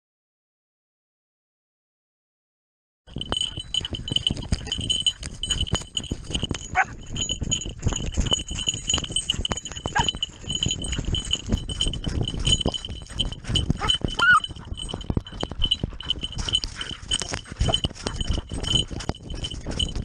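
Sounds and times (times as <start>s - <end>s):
bell jingling: 3.1s - 20.0s.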